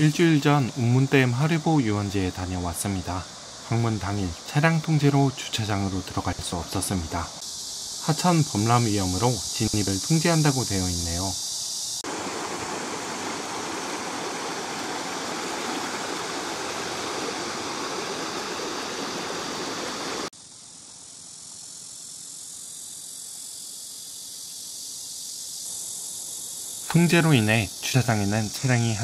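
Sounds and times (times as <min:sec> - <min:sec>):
cicadas droning: 0:00.0 - 0:29.0
river water rushing over weir: 0:12.0 - 0:20.3.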